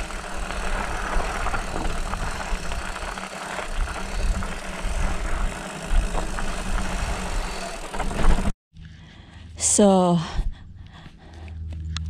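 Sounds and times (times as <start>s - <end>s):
bike rattling: 0.0s - 8.6s
wind and tyres rumbling: 0.0s - 8.6s.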